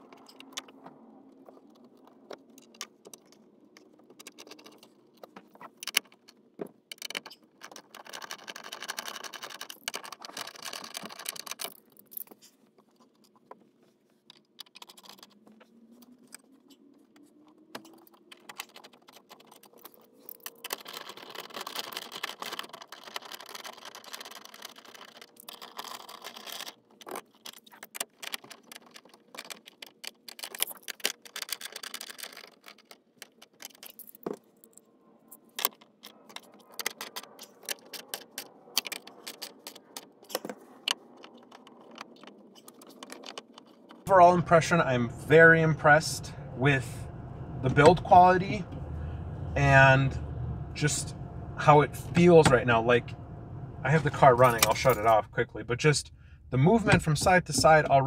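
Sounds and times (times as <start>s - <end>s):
metal tools clicking and clinking: 54.1s - 55.2s.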